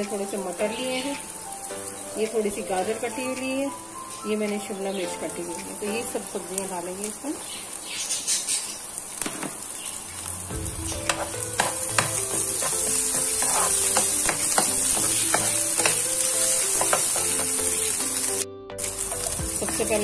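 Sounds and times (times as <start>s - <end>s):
soft background music: 0.0s - 7.4s, 10.2s - 20.0s
vegetables sizzling in hot oil: 0.0s - 20.0s
metal spatula scraping a pan: 10.8s - 17.8s.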